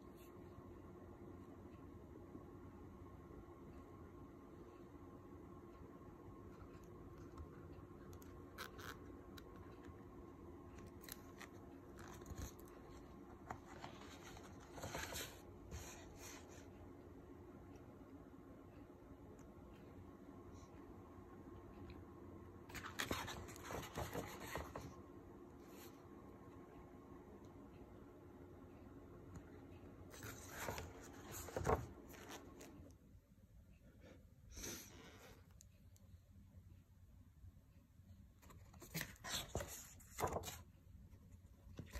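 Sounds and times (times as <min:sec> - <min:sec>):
pages rustling and turning: 0:10.7 - 0:16.6, 0:22.7 - 0:24.9, 0:30.1 - 0:32.9, 0:38.4 - 0:40.7.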